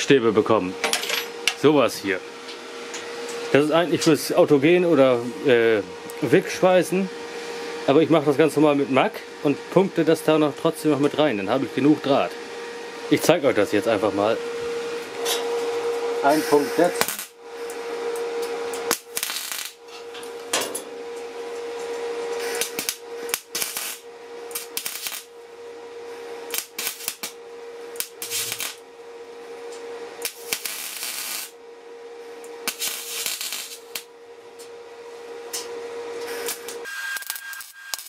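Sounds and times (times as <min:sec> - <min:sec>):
steady hum: 0:00.0 - 0:38.0
welding arc crackling: 0:16.2 - 0:17.4, 0:18.8 - 0:20.4, 0:22.2 - 0:25.4, 0:26.5 - 0:28.9, 0:30.2 - 0:31.6, 0:32.6 - 0:34.1, 0:36.2 - 0:38.0.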